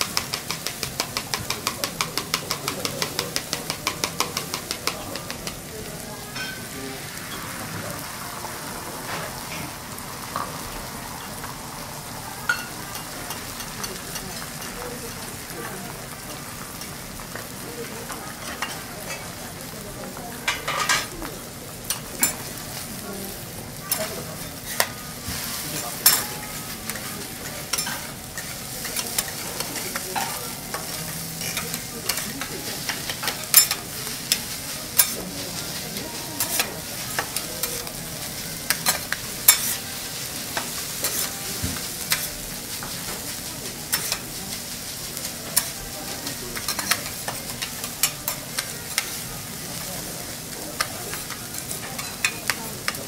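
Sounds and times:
rice sizzling on griddle: 0.0 - 53.0
metal spatulas clacking and scraping: 26.0 - 34.4, 35.0 - 35.8, 36.4 - 37.9, 38.7 - 39.8, 42.0 - 43.1, 43.9 - 44.3, 46.6 - 49.1, 50.8 - 53.0.

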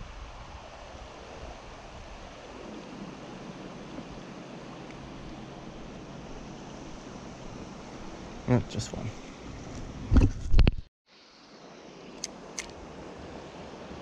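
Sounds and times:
river water rushing: 0.0 - 10.1, 11.2 - 14.0
wind rumbling on microphone: 0.0 - 10.9.

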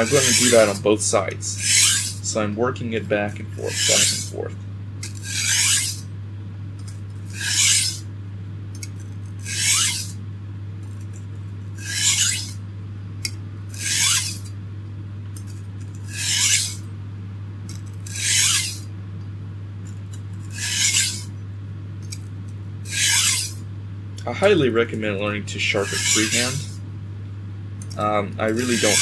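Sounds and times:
knife rasping on sharpening stone: 0.0 - 0.8, 1.6 - 2.2, 3.6 - 4.3, 5.1 - 6.0, 7.3 - 8.0, 9.4 - 10.2, 11.8 - 12.6, 13.7 - 14.5, 16.1 - 16.8, 18.0 - 18.9, 20.4 - 21.3, 22.9 - 23.6, 25.8 - 26.8, 28.5 - 29.0.

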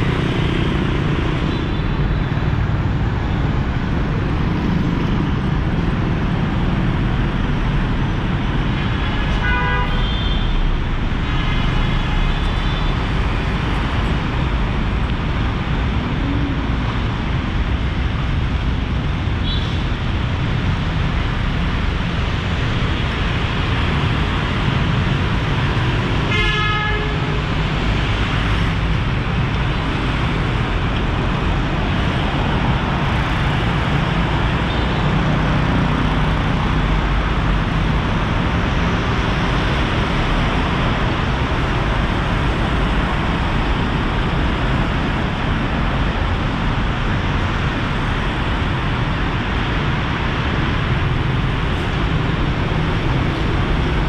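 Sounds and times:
city street traffic: 0.0 - 54.0
vehicle horn: 9.4 - 10.6, 26.3 - 27.4.

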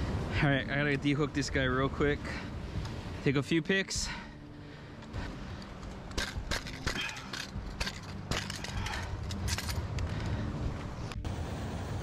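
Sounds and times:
metallic clinks of hooks and pliers: 5.7 - 10.2.

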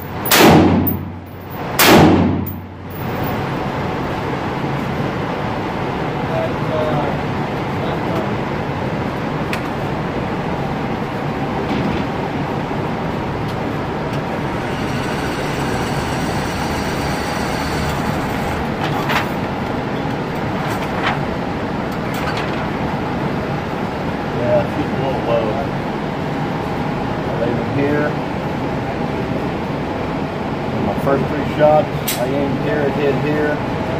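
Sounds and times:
rumbling air noise: 0.0 - 17.1, 18.0 - 33.9
motorized target carrier whining: 14.1 - 19.2.

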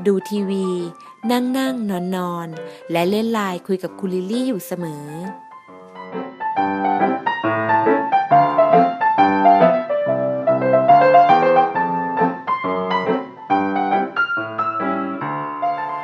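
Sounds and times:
gentle piano music: 0.0 - 16.0.

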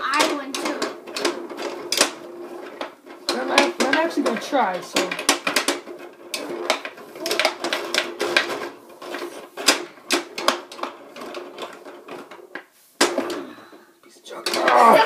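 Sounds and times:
metal rods knocking: 0.0 - 8.6
plastic figures and ball clacking: 0.0 - 15.0.

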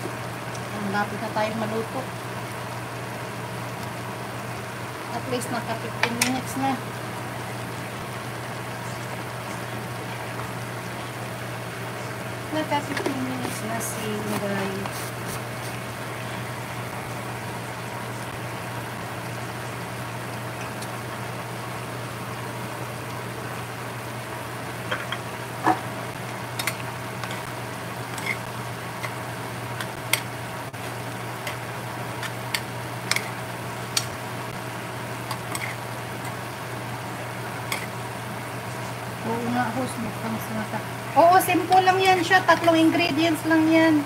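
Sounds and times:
broth simmering and sizzling: 0.0 - 44.0.

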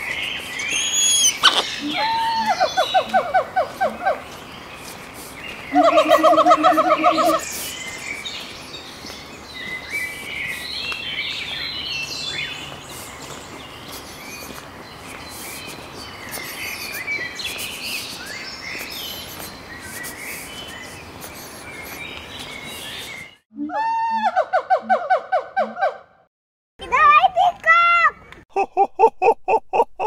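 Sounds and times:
small birds chirping: 0.0 - 23.4.

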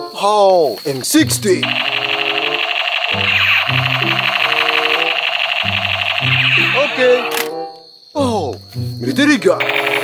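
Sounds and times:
background music: 1.3 - 10.0
toy gun buzzy firing effect: 1.6 - 7.5, 9.6 - 10.0.

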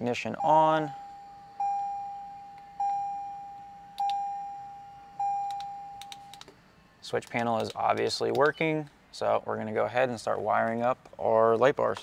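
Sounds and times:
dashboard warning chime: 0.3 - 6.4.

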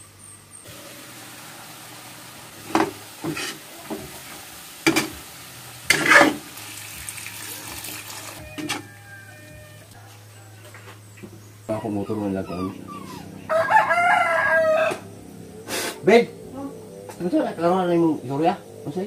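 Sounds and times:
food sizzling in a pan: 0.6 - 10.0.

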